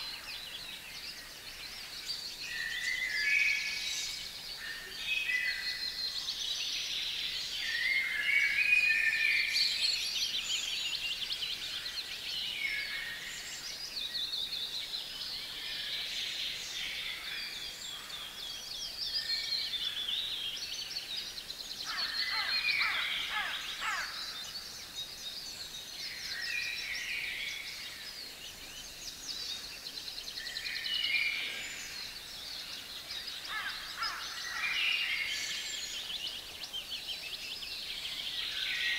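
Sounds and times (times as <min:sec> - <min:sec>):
songbirds trilling and warbling: 0:00.0 - 0:38.9.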